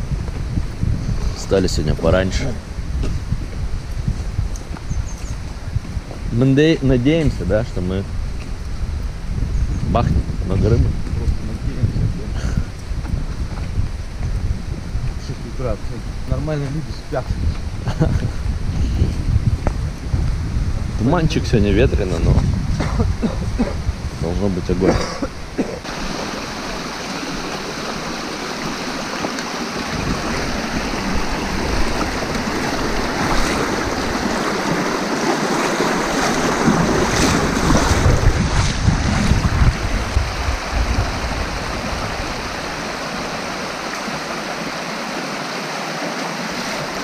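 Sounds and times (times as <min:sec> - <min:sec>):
wind buffeting microphone: 0:00.0 - 0:44.8
river rushing over stones: 0:25.3 - 0:47.0.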